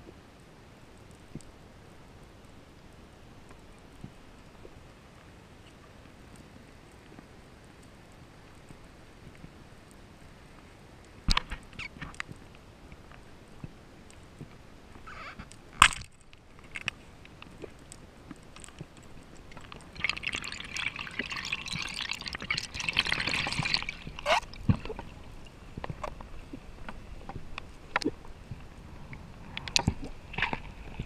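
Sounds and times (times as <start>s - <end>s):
underwater clicks and knocks: 11.3s - 12.4s, 15.8s - 28.2s, 29.5s - 31.0s
bubbling rushing water: 18.4s - 28.4s.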